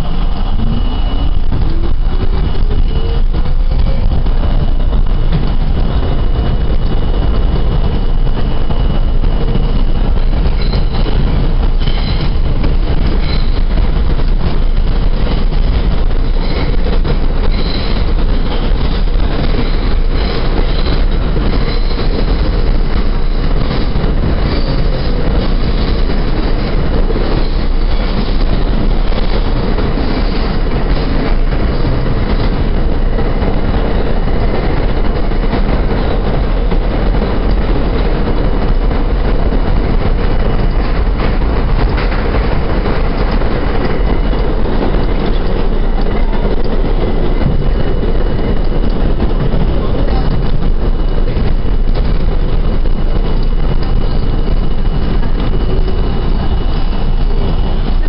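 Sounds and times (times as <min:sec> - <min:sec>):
thin high whine: 0:00.0 - 0:15.0
subway wheels rumbling and rattling: 0:00.0 - 0:58.0.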